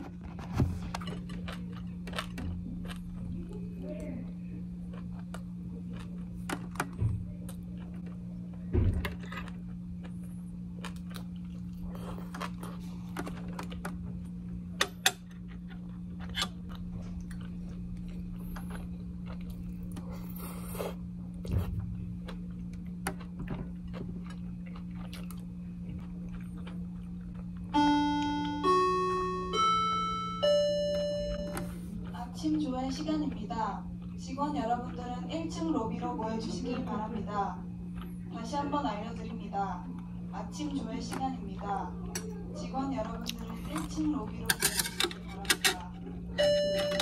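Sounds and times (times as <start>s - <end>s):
steady low hum: 0.0s - 47.0s
chewing: 0.1s - 27.7s, 31.6s - 46.3s
rising chime of ringing notes: 27.8s - 31.7s.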